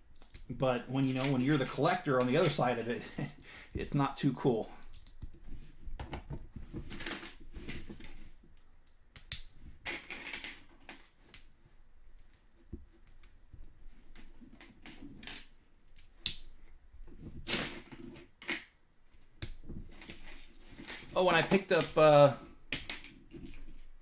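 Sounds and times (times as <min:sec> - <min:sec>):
plastic bricks clicking: 0:04.8 - 0:05.2.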